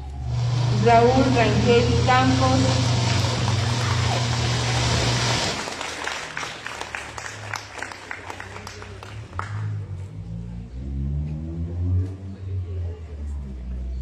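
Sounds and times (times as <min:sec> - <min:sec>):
low steady hum: 0:00.0 - 0:05.8
crowd clapping: 0:02.4 - 0:10.1.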